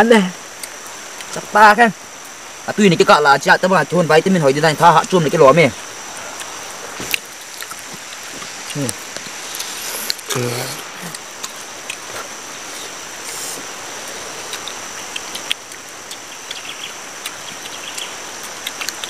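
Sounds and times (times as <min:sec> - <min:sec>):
outdoor hiss: 0:00.0 - 0:19.0
short vocal sound: 0:09.9 - 0:11.2.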